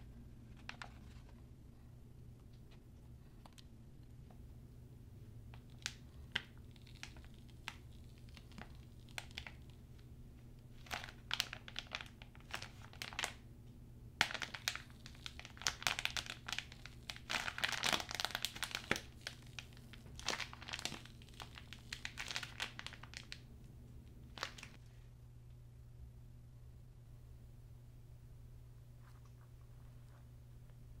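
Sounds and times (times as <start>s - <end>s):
faint low hum: 0.0s - 31.0s
plastic bag crinkling: 5.5s - 9.8s, 10.8s - 13.4s, 14.2s - 23.4s, 24.3s - 24.8s.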